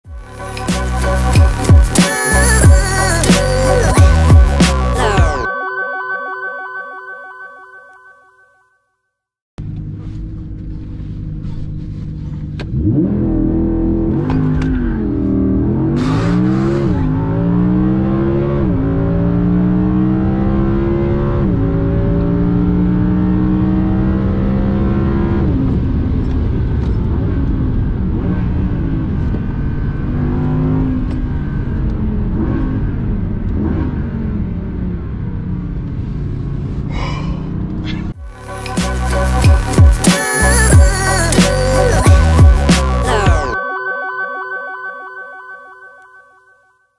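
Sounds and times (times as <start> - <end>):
car engine accelerating: 9.6 - 43.6.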